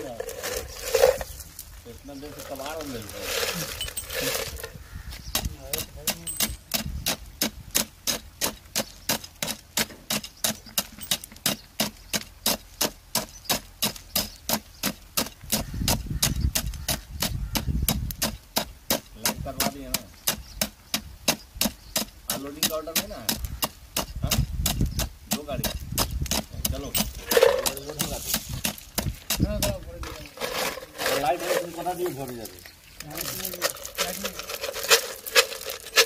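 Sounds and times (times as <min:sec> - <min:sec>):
steel rod tamping stones: 0:00.0 - 0:36.0.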